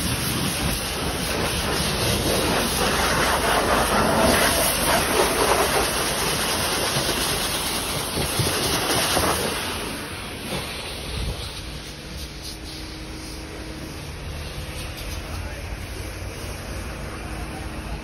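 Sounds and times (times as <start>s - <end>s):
pressure washer spraying water: 0.0s - 17.5s.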